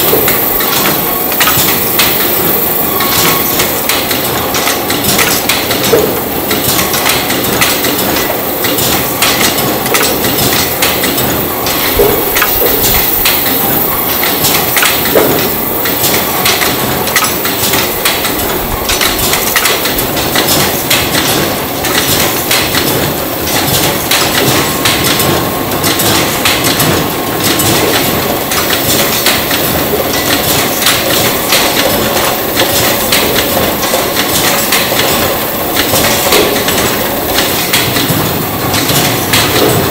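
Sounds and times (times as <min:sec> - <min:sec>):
production line machinery clattering: 0:00.0 - 0:39.9.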